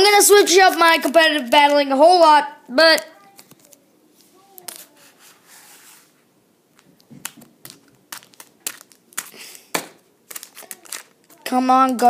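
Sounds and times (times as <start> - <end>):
foil wrapper crinkling: 6.8 - 11.6.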